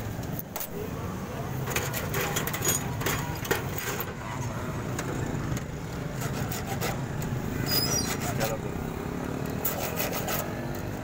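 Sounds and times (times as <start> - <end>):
hand file scraping metal key: 6.1 - 8.7, 9.6 - 10.6.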